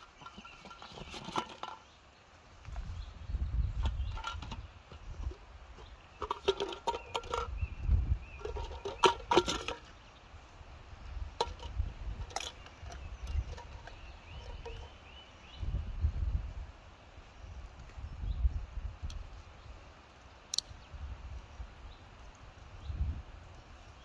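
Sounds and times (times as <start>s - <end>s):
metal cookware clinking and rattling: 0.1s - 1.8s, 6.2s - 7.5s, 8.4s - 9.9s, 11.4s - 14.9s
low wind rumble: 2.5s - 20.0s, 20.6s - 24.0s.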